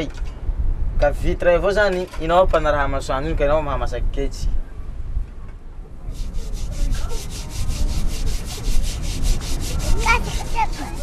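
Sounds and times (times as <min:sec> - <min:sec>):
scrubbing metal pot: 0:06.1 - 0:11.0.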